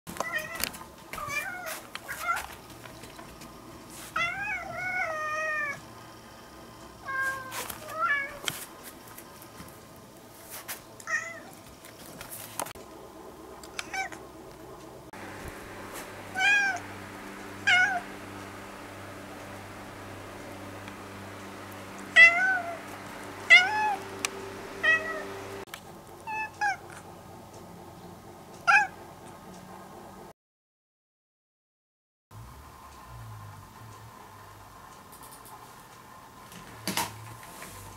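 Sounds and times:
cat meowing: 4.2 - 5.8, 7.0 - 8.4, 22.2 - 22.8, 23.5 - 24.0, 24.8 - 25.3.

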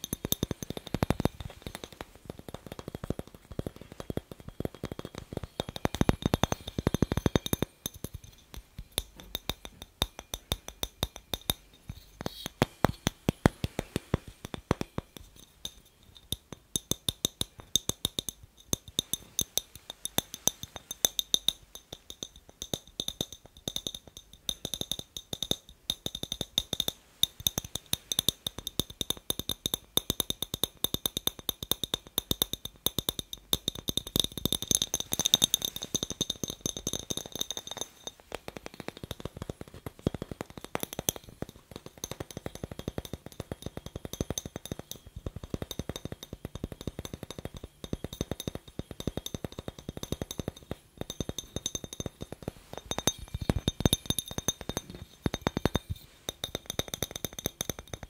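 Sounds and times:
fingers tapping glass bulb: 0.0 - 58.0
glass ringing high tones: 33.7 - 38.2, 42.0 - 58.0.

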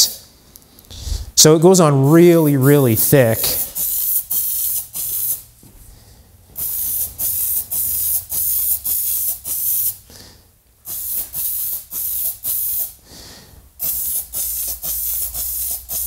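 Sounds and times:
spray paint can hissing: 3.0 - 5.5, 6.6 - 10.0, 10.8 - 13.0, 13.8 - 16.0.

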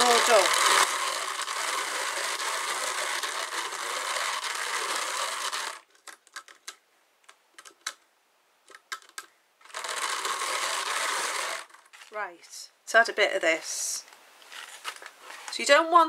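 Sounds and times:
drum carder whirring rasp: 0.0 - 5.8, 9.6 - 11.8.

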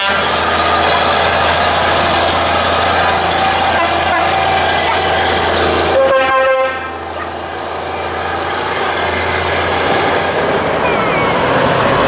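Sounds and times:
truck air horn blast: 0.0 - 0.5, 3.8 - 4.4, 5.9 - 7.3
diesel trucks running: 0.0 - 12.0.

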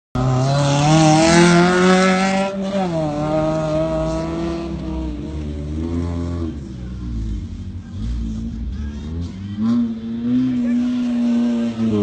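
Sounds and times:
suv engine revving hard: 0.2 - 6.6.

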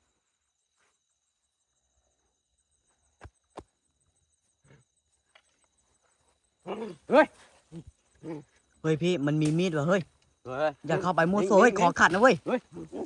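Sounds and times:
faint high insect trill: 0.0 - 13.0.

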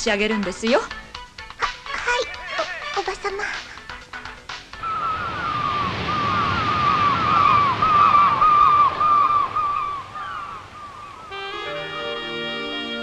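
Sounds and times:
seagulls crying: 4.8 - 13.0
surf rushing: 4.8 - 13.0
music with sustained tones: 9.1 - 13.0.

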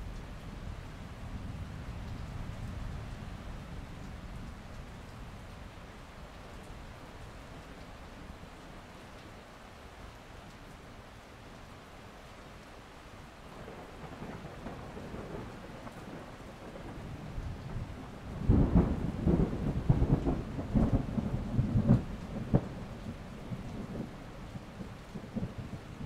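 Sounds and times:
steady rain: 0.0 - 26.0
thunder rumbling: 13.5 - 26.0.

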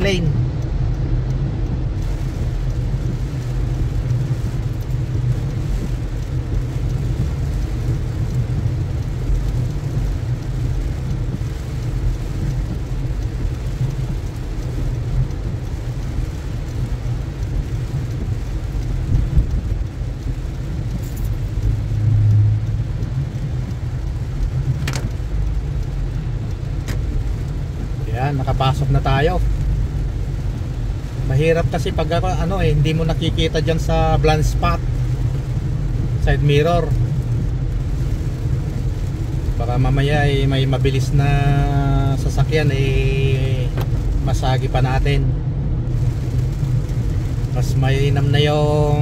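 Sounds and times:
rain hissing: 0.0 - 49.0
road rumble inside car: 0.0 - 49.0
tyres on wet road: 0.0 - 49.0
sharp clicks: 24.7 - 25.3.

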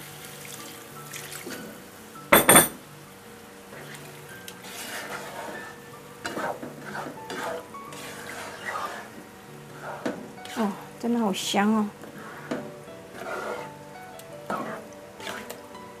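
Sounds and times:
faint sizzle from pot: 0.0 - 16.0
metal utensil clattering on pot: 2.4 - 2.8
utensil stirring and scraping: 3.7 - 11.0, 12.0 - 13.8, 14.5 - 15.6.

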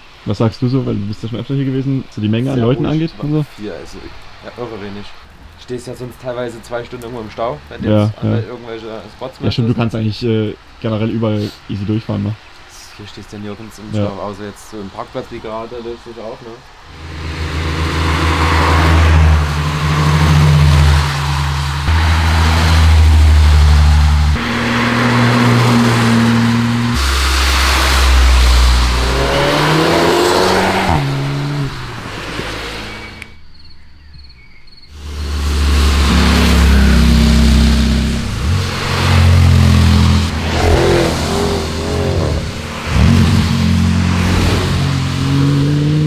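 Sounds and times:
tyres hissing on wet road: 0.0 - 33.2, 35.0 - 46.0
cars driving past: 16.7 - 33.3, 34.9 - 46.0
engine revving: 16.9 - 33.3, 35.0 - 46.0.

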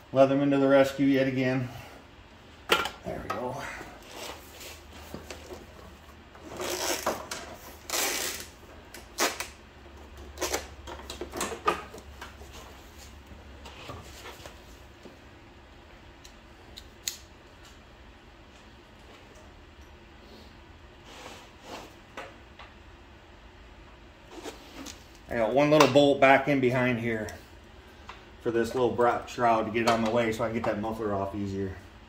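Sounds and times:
tools rustling and scraping: 24.3 - 25.3.

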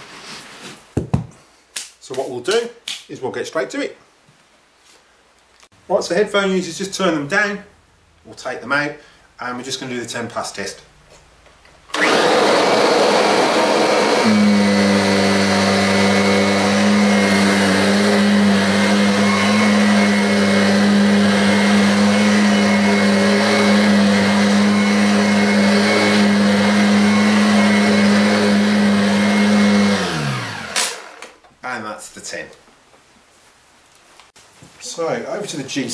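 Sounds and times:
vacuum cleaner hum: 11.9 - 31.2
vacuum cleaner air rush: 12.0 - 31.0.

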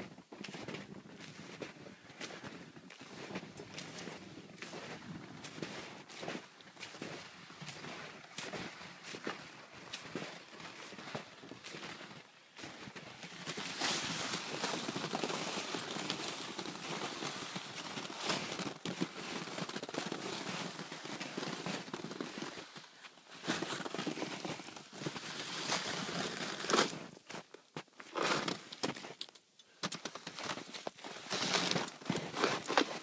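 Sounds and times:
footsteps crunching on snow: 0.4 - 29.2, 30.1 - 33.0
sled scraping through snow: 12.9 - 27.1, 30.4 - 33.0.

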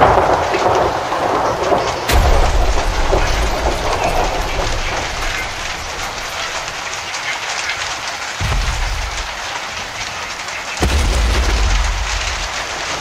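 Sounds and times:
steady rain falling: 0.0 - 13.0
low rumble: 2.1 - 6.9, 10.8 - 13.0.

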